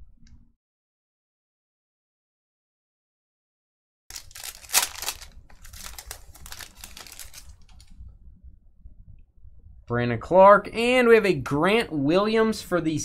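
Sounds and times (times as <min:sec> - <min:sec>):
wrapper tearing and crinkling: 0:04.1 - 0:07.9.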